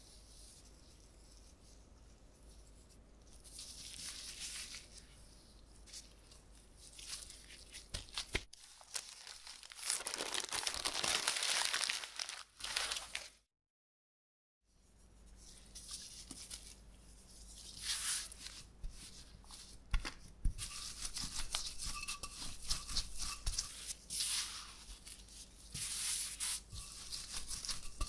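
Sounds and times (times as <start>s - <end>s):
plastic wrap crinkling: 6.9s - 13.4s.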